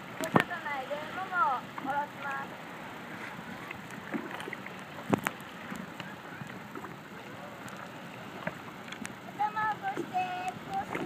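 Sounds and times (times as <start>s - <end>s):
small waves lapping against boards: 0.0s - 11.0s.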